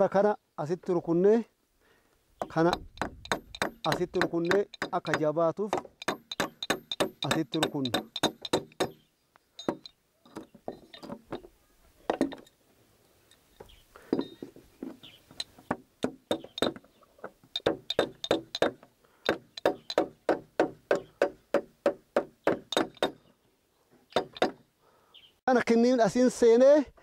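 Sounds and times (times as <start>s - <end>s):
hammer driving nail into wood: 2.4s - 9.0s, 15.7s - 16.8s, 17.5s - 23.2s, 24.1s - 24.6s.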